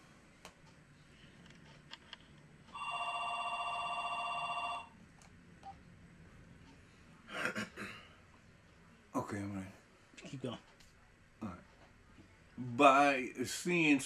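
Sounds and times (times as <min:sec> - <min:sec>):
mobile phone ringing: 0:02.7 - 0:05.0.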